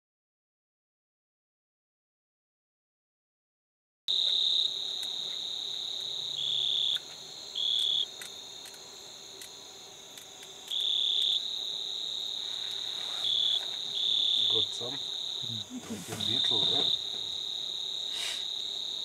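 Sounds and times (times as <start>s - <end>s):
crickets trilling: 4.1s - 19.0s.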